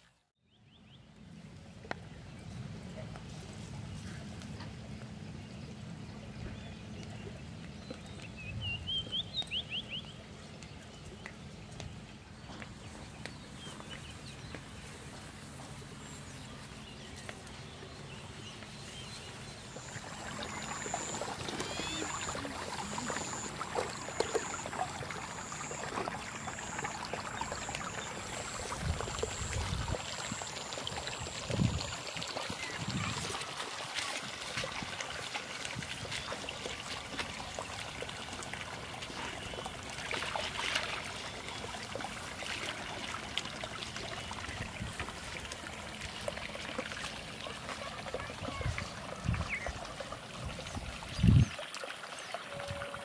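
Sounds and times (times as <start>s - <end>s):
water trickling and gurgling: 11.9s - 53.0s.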